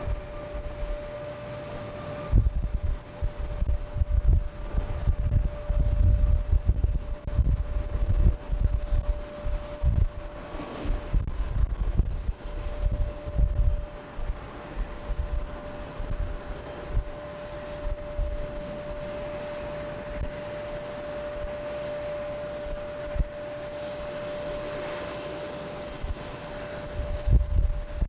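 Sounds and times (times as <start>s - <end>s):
jet engine rumble with whine: 0.0s - 28.0s
wind buffeting microphone: 0.0s - 28.0s.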